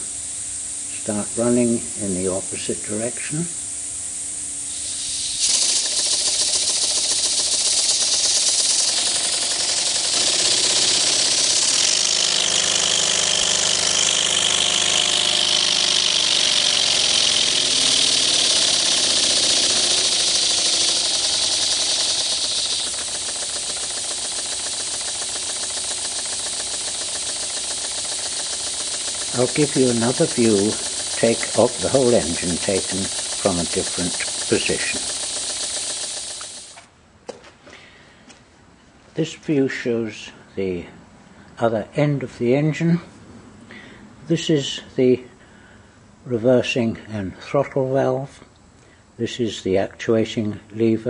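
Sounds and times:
air exhaust hissing: 0.0 - 36.8
model engine clattering: 5.0 - 36.8.

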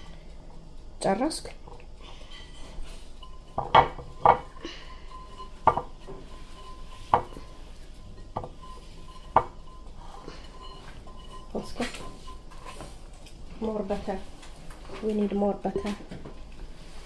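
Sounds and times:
whisk knocking against glass bowl: 3.2 - 13.2.

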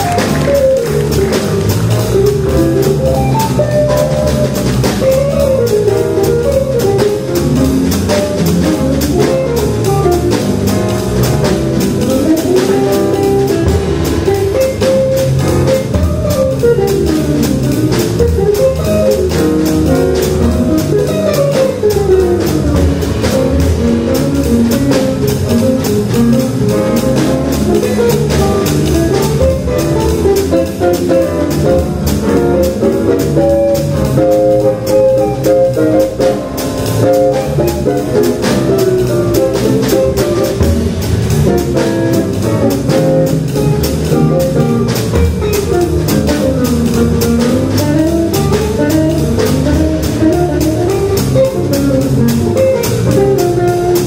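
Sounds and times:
drum kit cymbals: 0.0 - 54.0
piano accompaniment: 0.0 - 54.0
guitar melodic lines: 11.8 - 49.1.

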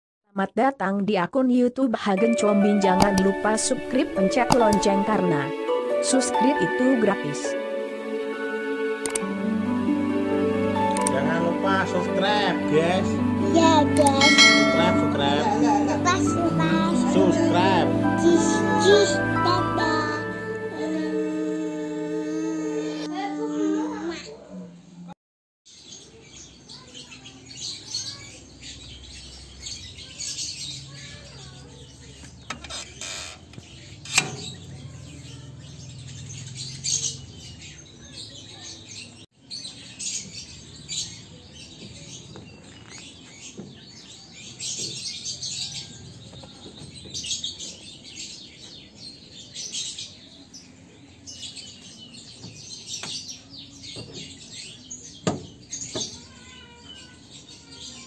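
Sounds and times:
small birds chirping: 25.7 - 58.0.

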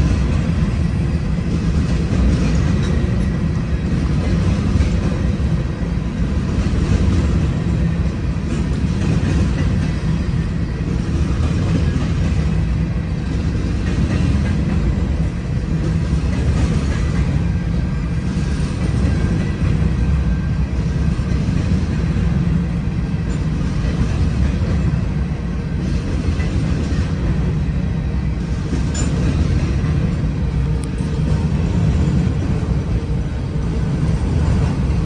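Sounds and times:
train wheels on rails: 0.0 - 35.0.

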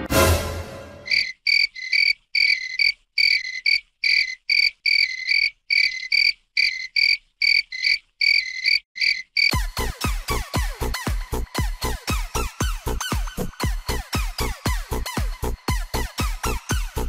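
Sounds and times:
high-pitched croaking calls: 1.1 - 9.5.

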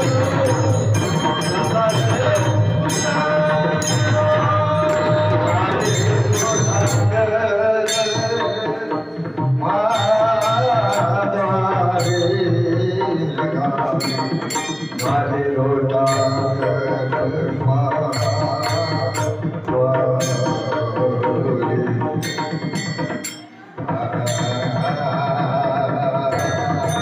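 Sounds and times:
hand cymbals clashing: 0.0 - 11.4, 12.0 - 12.7, 14.0 - 15.4, 22.2 - 25.2
drum beat: 0.0 - 27.0
men singing into a microphone: 0.0 - 27.0.

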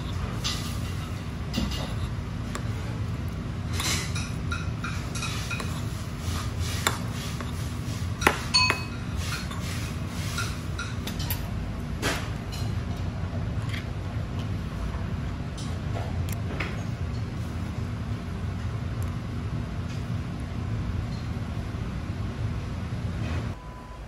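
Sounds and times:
low background hum: 0.0 - 24.0
spoon clinking in ceramic bowl: 8.2 - 9.6.

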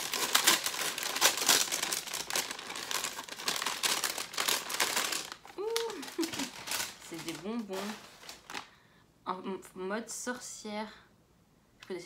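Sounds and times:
wrapping crinkling and rustling: 0.0 - 8.8.

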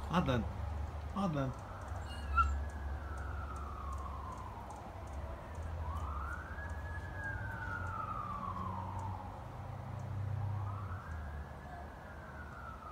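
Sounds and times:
fire truck siren wailing: 1.2 - 12.9.

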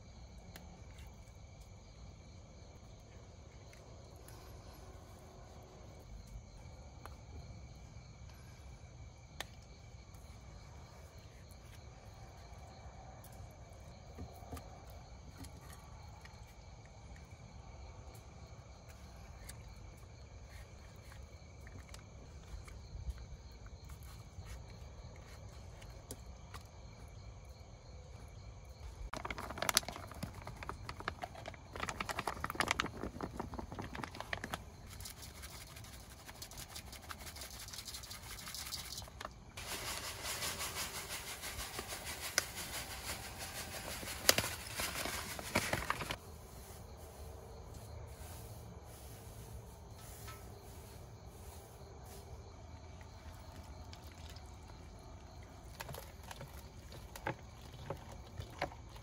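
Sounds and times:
insects chirring: 0.0 - 59.0
dense crackling rustling: 29.1 - 35.6, 39.6 - 46.2.

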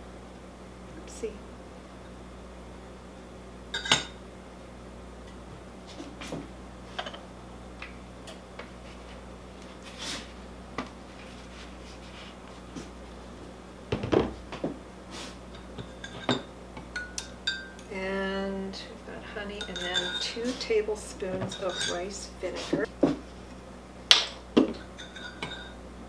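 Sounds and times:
low steady hum: 0.0 - 26.0
metal spoon clinking on glass bowl: 17.0 - 17.8, 19.6 - 20.4, 21.5 - 22.0.

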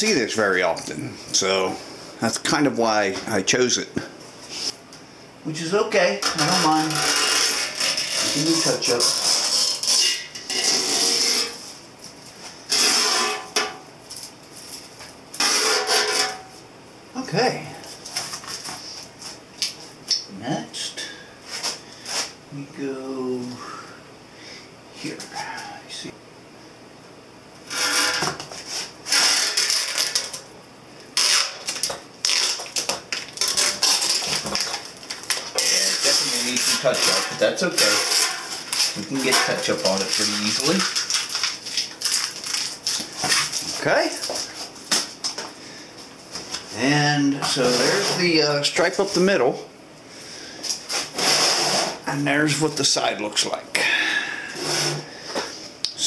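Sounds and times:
tape peeling crackly: 6.3 - 11.5, 28.8 - 30.4, 31.2 - 45.1.

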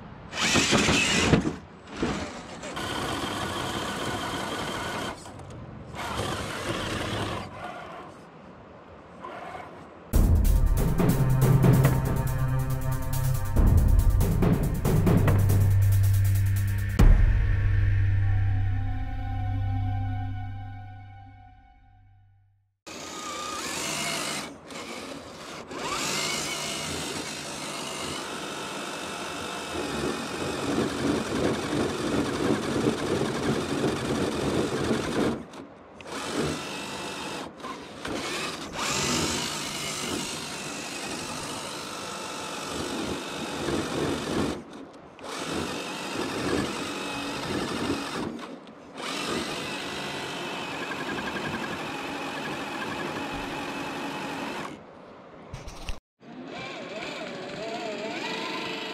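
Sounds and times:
rc crawler motor whining: 0.3 - 8.3, 22.9 - 54.8, 56.2 - 58.9
wheels crawling through sand: 0.3 - 10.0.

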